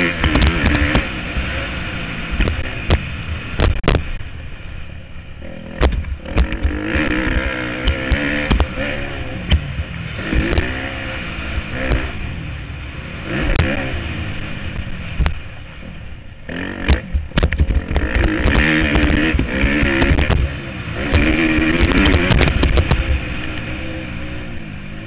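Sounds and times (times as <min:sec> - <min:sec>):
motocross bike engine revving: 0:00.0 - 0:04.2, 0:05.4 - 0:25.0
sharp knocks: 0:05.8 - 0:06.8, 0:07.8 - 0:08.8, 0:16.8 - 0:23.1.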